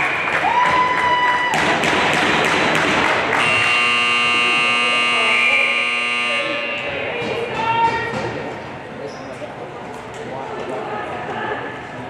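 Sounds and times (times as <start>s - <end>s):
scoreboard buzzer horn: 3.3s - 7.0s.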